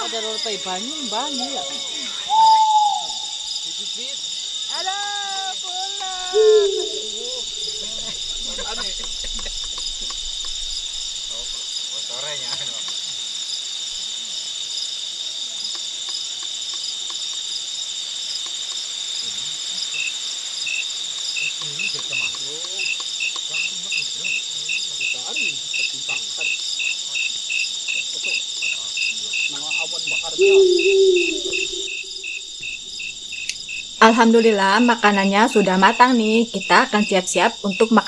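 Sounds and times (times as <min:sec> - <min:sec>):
crickets trilling: 0:00.0 - 0:38.0
regular insect chirp: 0:00.0 - 0:38.0
faint voices: 0:04.7 - 0:09.4, 0:29.7 - 0:32.4.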